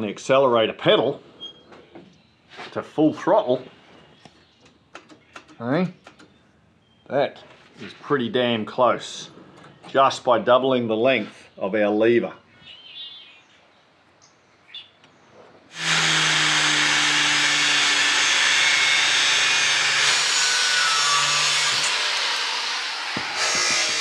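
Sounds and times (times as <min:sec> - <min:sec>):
angle grinder grinding steel: 0:15.7 - 0:24.0.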